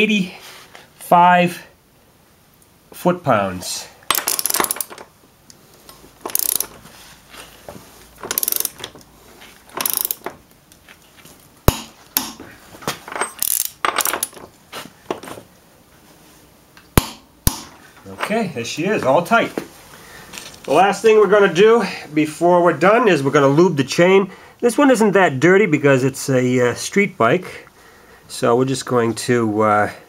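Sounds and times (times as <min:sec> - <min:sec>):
torque wrench ratchet clicks: 0:04.1 - 0:05.0, 0:06.3 - 0:06.8, 0:08.2 - 0:08.8, 0:09.7 - 0:10.3, 0:13.4 - 0:14.3.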